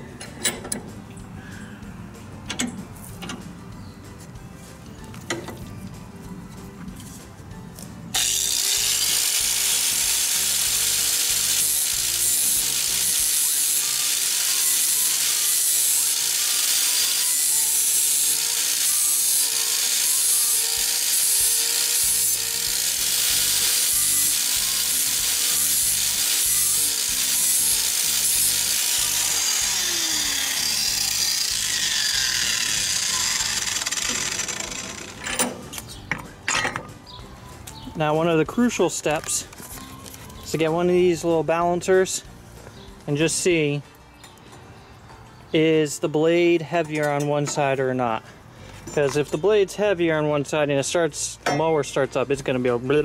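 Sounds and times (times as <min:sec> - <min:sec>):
angle grinder grinding steel: 0:08.2 - 0:36.0.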